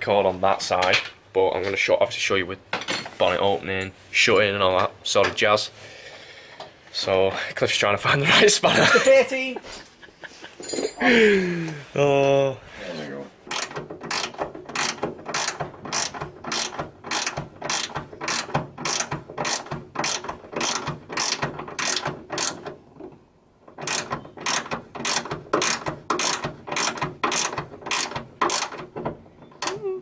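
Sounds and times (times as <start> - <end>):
ratchet spanner clicking: 13.5 - 22.7, 23.8 - 28.9.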